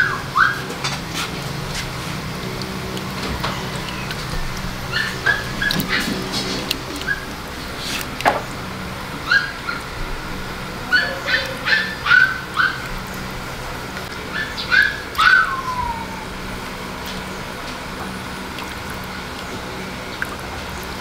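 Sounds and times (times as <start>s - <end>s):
steady low hum: 0.0s - 21.0s
dog whining and whimpering: 3.4s - 6.3s, 10.8s - 12.8s, 14.4s - 16.4s.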